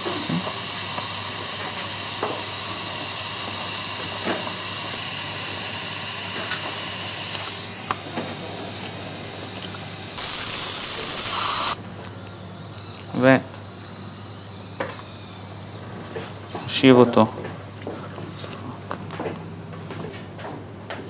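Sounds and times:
surgical suction hissing: 0.0s - 8.0s, 8.9s - 11.8s.

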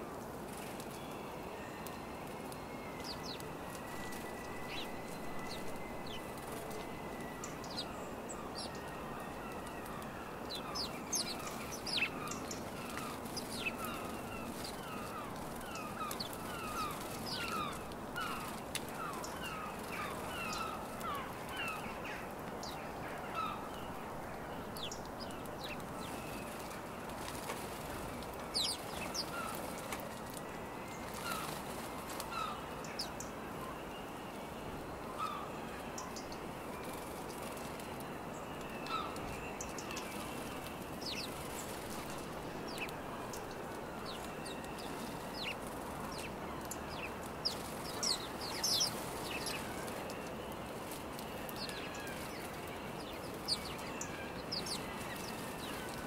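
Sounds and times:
steady background noise: 0.0s - 56.0s
wings fluttering: 3.0s - 21.9s, 25.2s - 30.4s, 31.0s - 32.5s, 38.8s - 56.0s
sparrows chirping: 3.0s - 30.2s, 35.2s - 56.0s.

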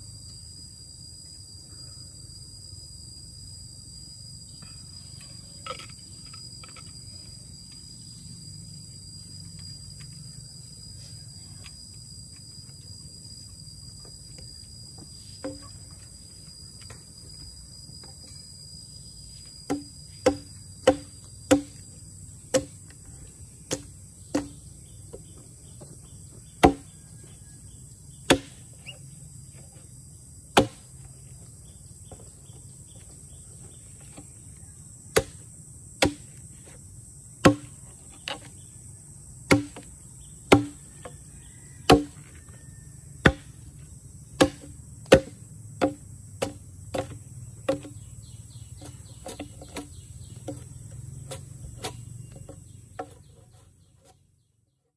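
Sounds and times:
high-pitched insect drone: 0.0s - 53.9s
sharp knocks: 19.7s - 21.8s, 37.4s - 37.7s, 41.9s - 42.2s, 44.4s - 48.0s.

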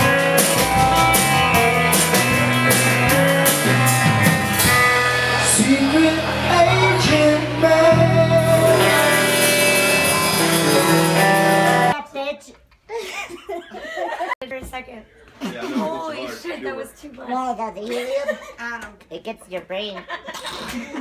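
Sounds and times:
bass guitar: 0.0s - 12.0s
drum kit with cymbals: 0.0s - 12.0s
electric guitar: 0.0s - 12.0s
man singing: 4.8s - 11.9s.

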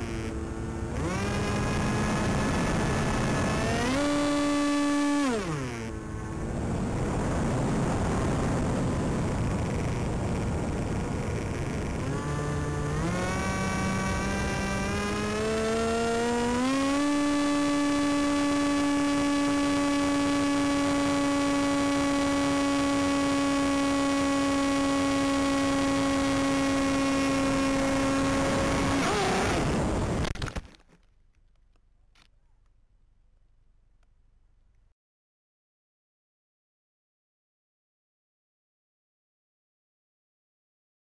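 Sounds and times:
model airplane motor and propeller: 0.0s - 32.8s
wind rush on microphone: 6.0s - 14.9s, 26.4s - 30.4s.

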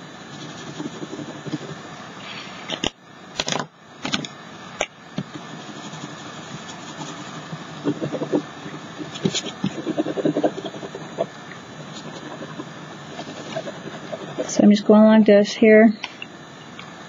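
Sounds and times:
crayon scribbling on paper: 0.3s - 1.9s, 5.3s - 14.7s.

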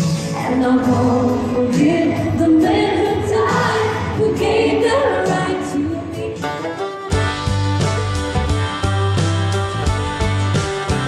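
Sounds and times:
amplified backing track: 0.0s - 11.0s
female lead singer: 0.2s - 6.6s
children's choir singing: 0.6s - 6.1s.

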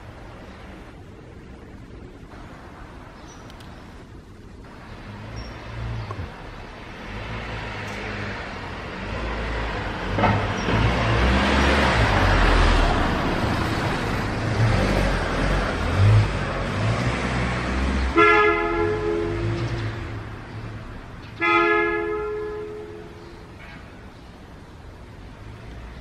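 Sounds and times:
vehicle passing by: 4.7s - 21.2s
car horn: 18.1s - 20.2s, 21.4s - 23.9s.

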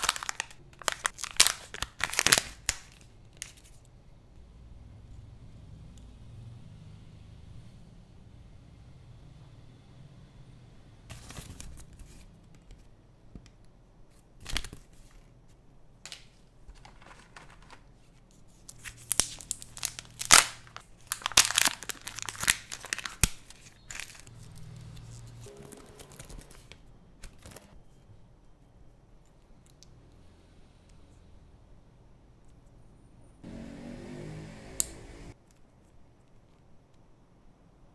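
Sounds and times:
paper and plastic rustling: 0.0s - 3.9s, 16.1s - 27.8s
plastic wrapping crinkling and tearing: 0.0s - 3.9s, 18.5s - 27.8s.

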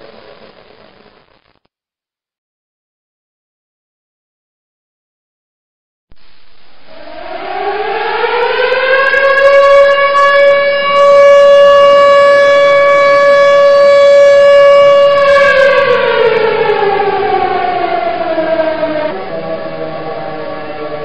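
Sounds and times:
siren winding up and down: 6.8s - 21.0s.

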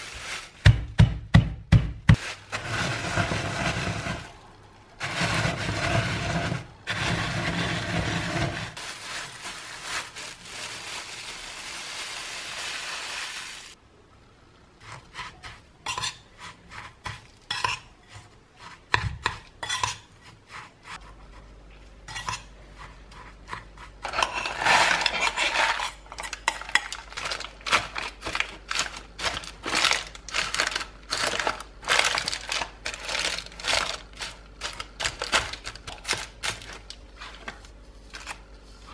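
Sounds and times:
cookies crunching in plastic bag: 2.2s - 13.8s, 24.3s - 37.1s.

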